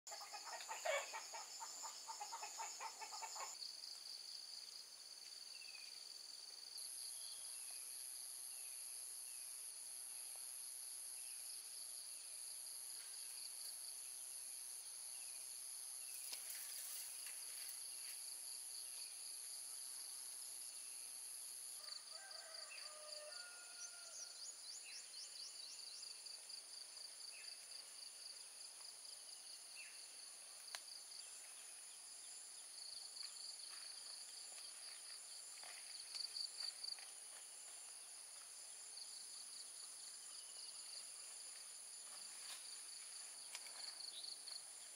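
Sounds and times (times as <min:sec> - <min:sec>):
chicken clucking: 0:00.1 - 0:03.6
insects droning: 0:00.1 - 0:44.9.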